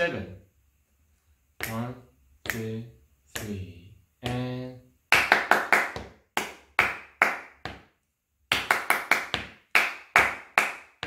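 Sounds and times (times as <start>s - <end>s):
hands clapping a rhythm: 1.6s - 3.6s, 4.2s - 11.0s.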